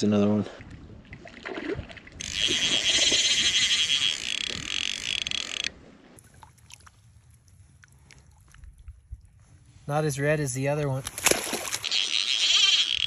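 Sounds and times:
fly reel buzzing with rapid clicks: 2.2s - 5.7s, 11.7s - 13.0s.

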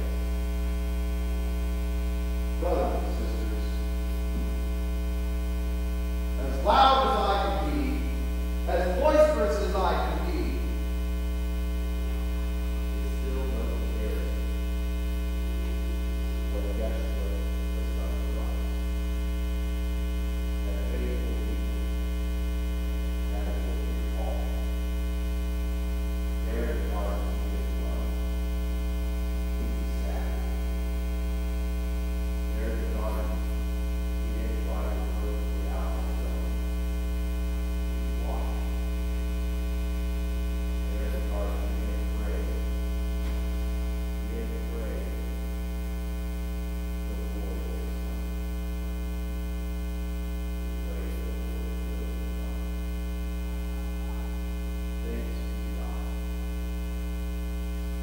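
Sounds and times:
electrical mains hum: 0.0s - 58.0s
faint man's voice: 2.6s - 4.5s, 6.4s - 10.7s, 13.0s - 14.4s, 16.5s - 18.8s, 20.6s - 21.6s, 23.3s - 24.7s, 26.4s - 28.3s, 29.6s - 30.6s, 32.5s - 33.5s, 34.3s - 36.6s, 38.2s - 38.8s, 40.9s - 42.8s, 44.2s - 45.2s, 47.1s - 48.2s, 50.8s - 52.7s, 53.7s - 56.2s.

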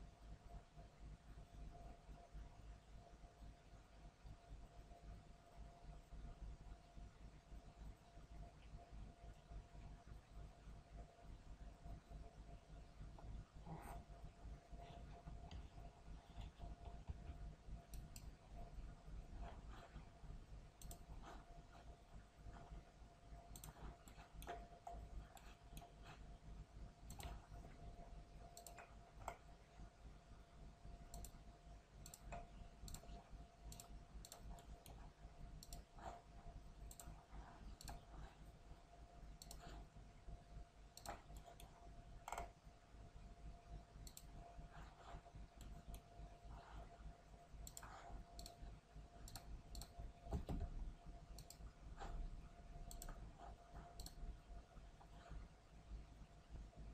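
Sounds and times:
faint steady hum: 0.0s - 56.9s
computer mouse clicks: 13.1s - 22.8s, 23.4s - 26.4s, 27.0s - 29.7s, 30.9s - 39.9s, 40.8s - 42.7s, 44.0s - 55.4s.

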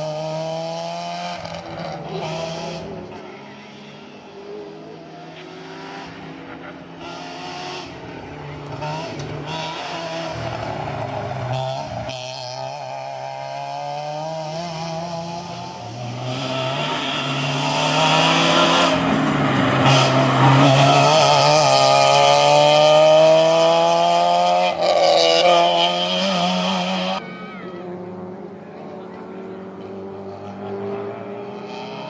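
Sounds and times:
rally car engine revving: 0.0s - 32.0s.

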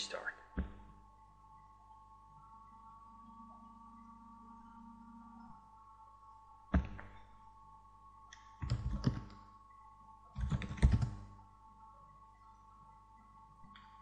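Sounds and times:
faint steady hum: 0.0s - 14.0s
computer keyboard typing: 8.6s - 9.4s, 10.4s - 11.2s.

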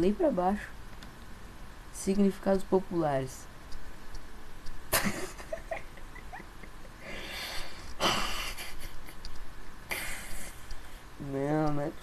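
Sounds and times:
man stifled laughter: 4.9s - 7.2s, 8.0s - 9.2s.

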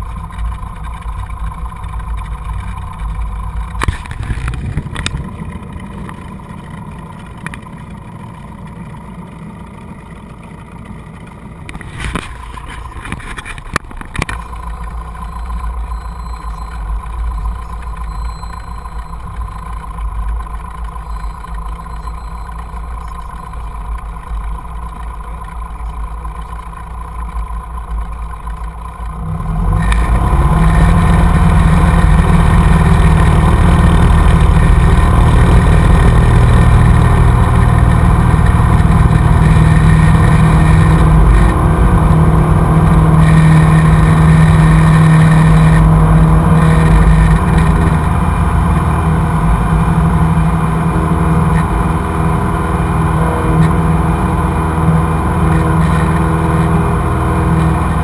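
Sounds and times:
aircraft engine drone in cabin: 0.0s - 58.0s
sharp clicks: 10.2s - 29.2s.

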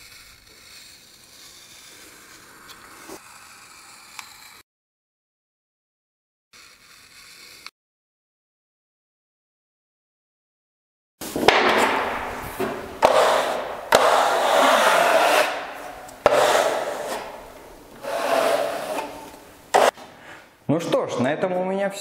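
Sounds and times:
utility knife scraping along metal: 0.0s - 4.6s, 6.6s - 7.7s, 12.6s - 20.0s.

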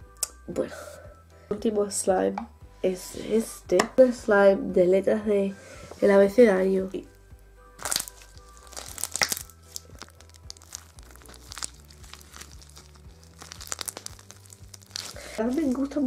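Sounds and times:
faint background music: 0.0s - 16.0s
slime popping and crackling: 7.8s - 16.0s.

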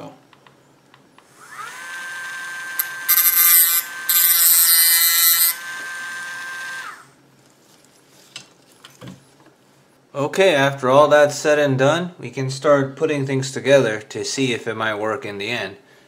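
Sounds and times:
rotary tool whining: 1.2s - 7.1s
cut-off wheel grinding metal rod: 1.5s - 7.0s.

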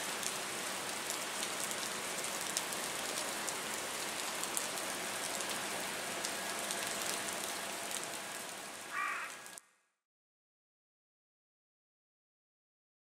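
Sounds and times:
heavy rain falling: 0.0s - 9.6s.

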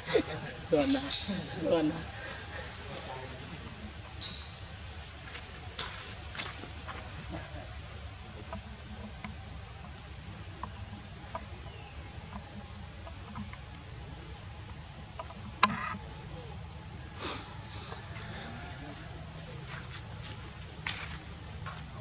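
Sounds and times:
forest insects droning: 0.0s - 22.0s
faint ticks: 8.3s - 16.1s.

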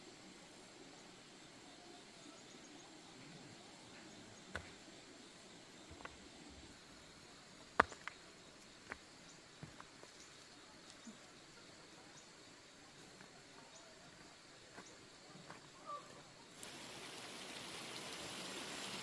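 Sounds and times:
flat stones knocking and clicking: 5.9s - 6.2s, 7.7s - 8.2s, 8.8s - 10.2s.

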